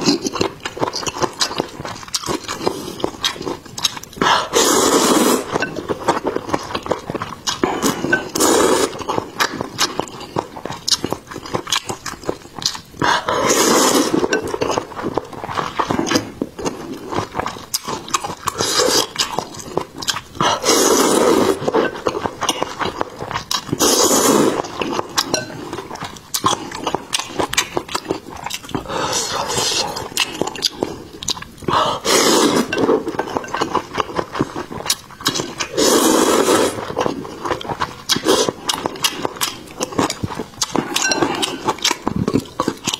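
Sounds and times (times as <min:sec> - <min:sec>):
wet chewing clicks: 0:00.0 - 0:42.9
slurping noodles: 0:04.2 - 0:06.2, 0:07.5 - 0:10.0, 0:13.0 - 0:14.8, 0:18.5 - 0:19.5, 0:20.4 - 0:22.0, 0:23.6 - 0:25.7, 0:28.4 - 0:31.1, 0:31.7 - 0:34.6, 0:35.2 - 0:42.8.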